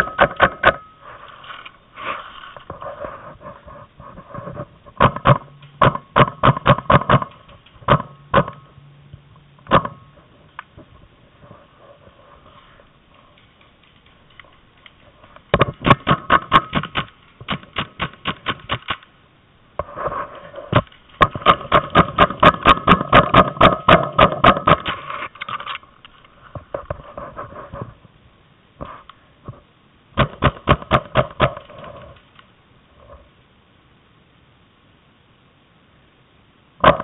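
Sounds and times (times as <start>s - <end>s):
paintball markers firing rapidly: 5.0s - 8.6s, 15.5s - 19.0s, 20.8s - 25.1s, 30.2s - 32.0s.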